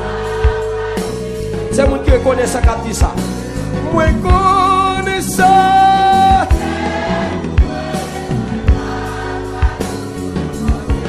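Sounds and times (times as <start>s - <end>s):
band playing: 0.0s - 11.0s
gospel singing: 0.0s - 11.0s.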